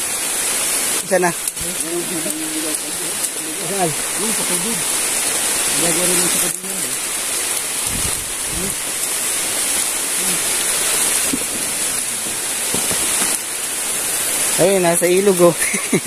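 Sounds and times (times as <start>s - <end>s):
river water rushing: 0.0s - 16.0s
steady rain falling: 0.0s - 16.0s.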